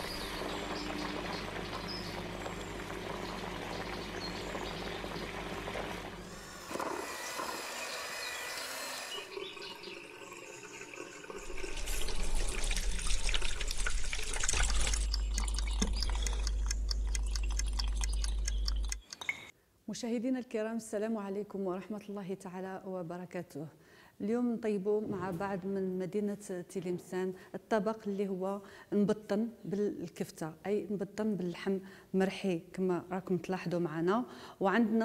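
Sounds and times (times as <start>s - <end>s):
water pouring and dripping effects: 9.3s - 19.4s
deep bass: 14.6s - 19.0s
quick clicks: 14.8s - 19.4s.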